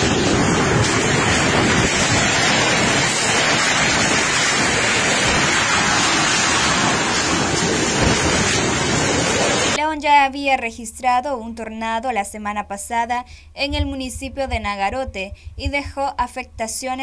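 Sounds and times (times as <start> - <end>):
heavy rain: 0.0 - 9.8
strong wind rushing: 0.0 - 9.8.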